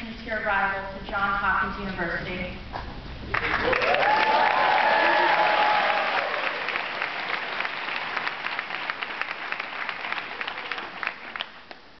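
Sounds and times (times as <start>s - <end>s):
people clapping: 3.3s - 12.0s.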